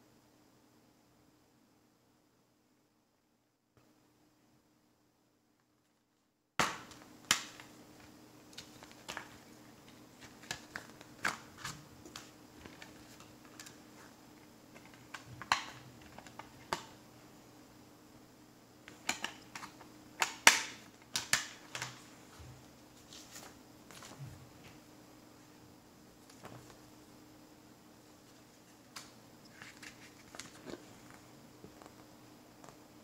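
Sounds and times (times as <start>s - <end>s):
faint steady hum: 0.0s - 33.0s
plastic disc case clicking and snapping: 6.6s - 13.8s, 14.7s - 17.0s, 18.9s - 22.0s.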